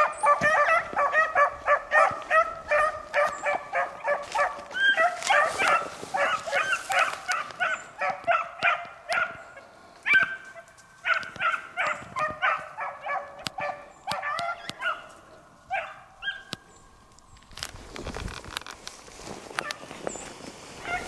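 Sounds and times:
dogs baying: 0.0s - 16.6s.

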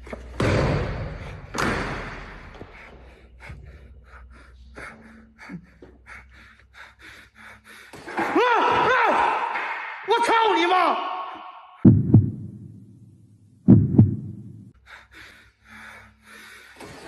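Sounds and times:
man yelling: 8.2s - 11.5s.

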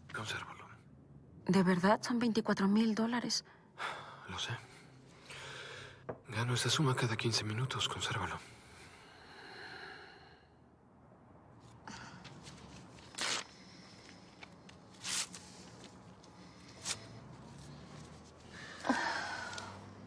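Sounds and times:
short rustles or swishes: 14.9s - 16.0s.

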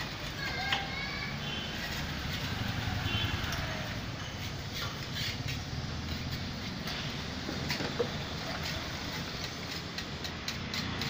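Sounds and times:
low street rumble: 0.0s - 11.0s
scrapers scraping paint off steel: 4.4s - 11.0s.

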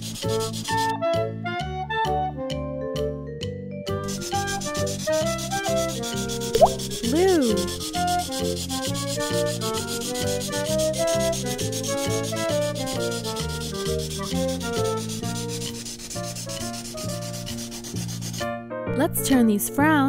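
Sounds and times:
scratchy rubbing: 0.0s - 0.9s, 4.0s - 18.5s
bouncy background music: 0.1s - 20.0s.

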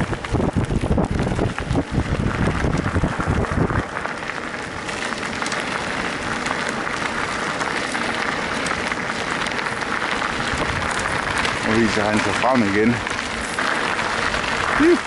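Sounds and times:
wind buffeting microphone: 0.0s - 5.4s, 6.0s - 15.0s
bike tyres rolling on gravel: 0.0s - 15.0s.

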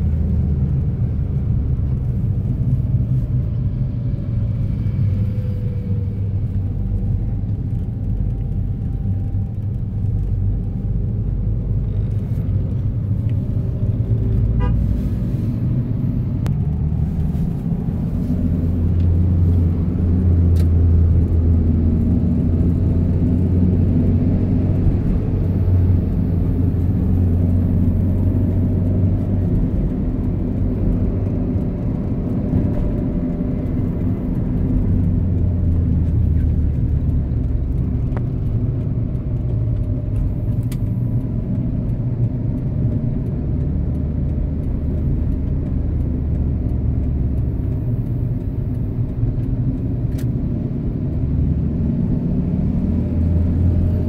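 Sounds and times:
car engine and road rumble: 0.0s - 54.0s.

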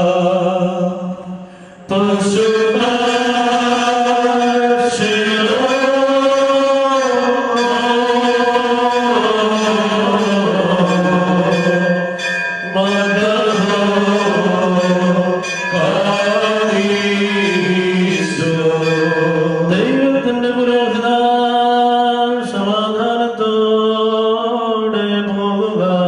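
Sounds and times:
man chanting a hymn: 0.0s - 12.0s, 12.7s - 26.0s
bell ringing: 1.9s - 22.4s.

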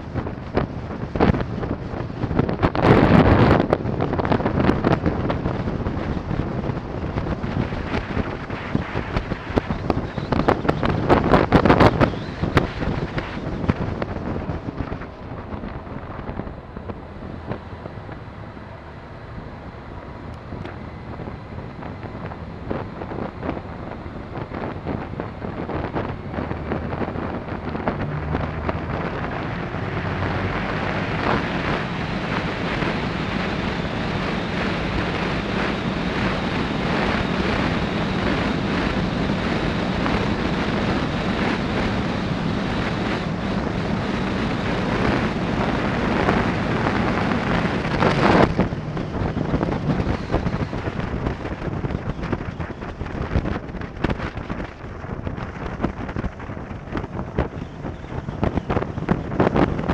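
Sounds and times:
wind buffeting microphone: 0.0s - 59.9s
motorcycle engine running: 20.4s - 59.9s.

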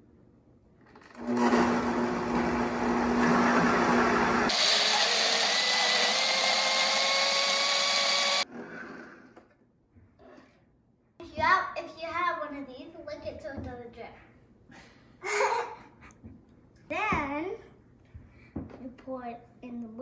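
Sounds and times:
blender running: 1.1s - 9.5s.

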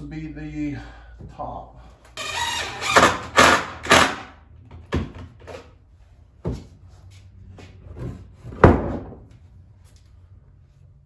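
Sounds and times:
wooden knocks and clunks: 8.0s - 9.3s.

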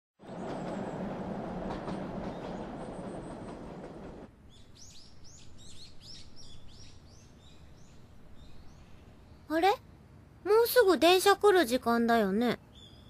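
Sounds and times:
small birds chirping: 4.5s - 9.8s, 12.5s - 13.0s.

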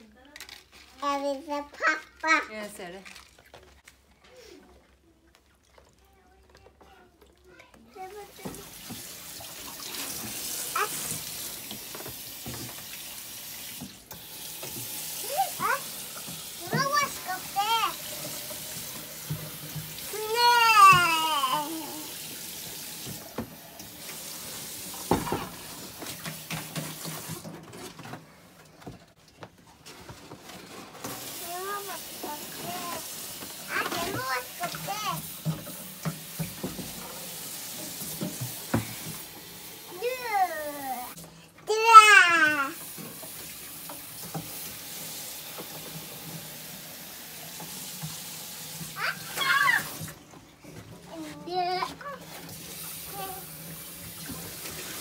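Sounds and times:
child's high-pitched voice: 0.0s - 2.5s, 4.2s - 8.8s, 10.7s - 11.2s, 15.2s - 16.0s, 16.6s - 18.1s, 20.1s - 22.1s, 31.3s - 33.1s, 33.7s - 35.3s, 39.9s - 42.8s, 48.9s - 50.0s, 51.1s - 52.4s, 53.0s - 53.6s
tap water running into sink: 5.4s - 28.0s, 30.9s - 55.0s.

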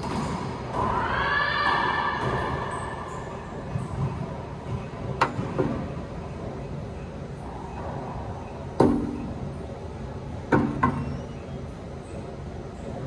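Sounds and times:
racquetball hits echoing: 0.0s - 5.8s.

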